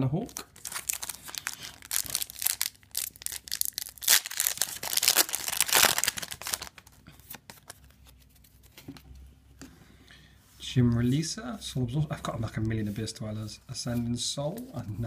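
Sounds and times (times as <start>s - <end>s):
handling of cards: 0.2s - 9.2s
foil wrapper crinkling and tearing: 0.3s - 6.9s.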